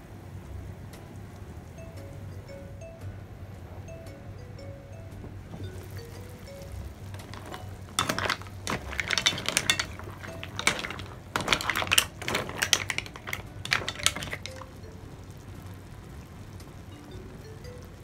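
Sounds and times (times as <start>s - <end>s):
mussel shells clattering in a wok: 5.7s - 15.7s.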